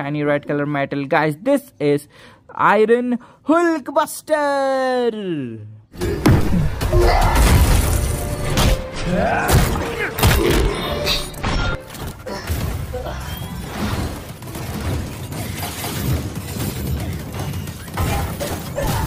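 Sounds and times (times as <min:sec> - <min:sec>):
action film music: 0:06.0 - 0:19.0.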